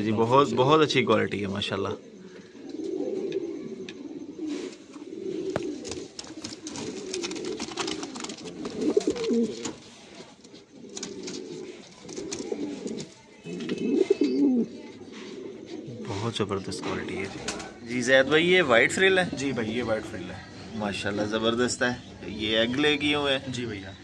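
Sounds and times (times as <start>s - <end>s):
pigeons cooing: 1.9s - 24.0s
light clicks and scratches: 5.6s - 13.8s.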